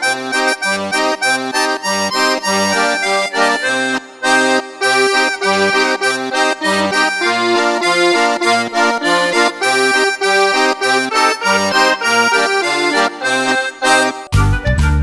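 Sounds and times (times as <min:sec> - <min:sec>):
upbeat instrumental music: 0:00.0 - 0:15.0
bouncing bass line: 0:06.8 - 0:15.0.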